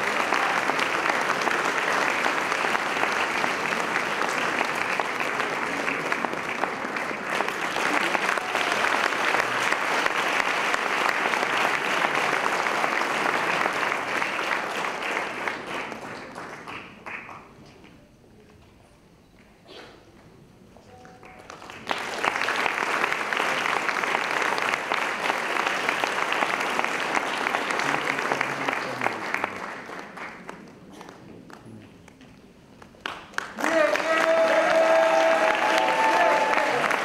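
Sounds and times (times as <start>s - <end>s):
audience applauding: 0.0s - 17.6s, 21.2s - 32.2s, 32.8s - 37.0s.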